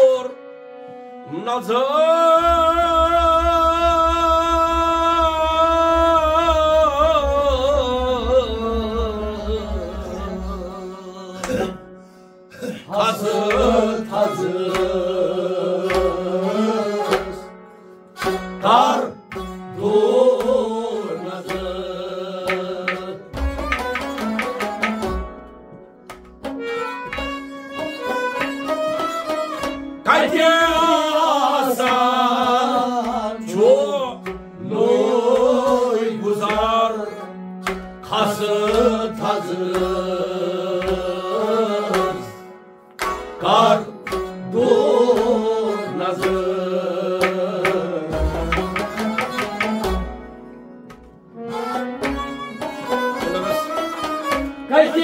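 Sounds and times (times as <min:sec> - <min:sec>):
man singing: 0:00.0 - 0:00.4, 0:01.2 - 0:17.5, 0:18.6 - 0:23.4, 0:30.1 - 0:37.4, 0:38.1 - 0:42.5, 0:43.4 - 0:49.8, 0:54.7 - 0:55.0
bowed string instrument: 0:00.0 - 0:55.0.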